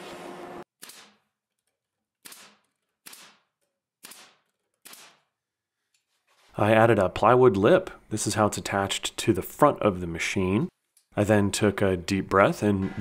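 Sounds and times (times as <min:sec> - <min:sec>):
pneumatic nailer shots: 0:00.7 - 0:01.3, 0:02.2 - 0:05.3.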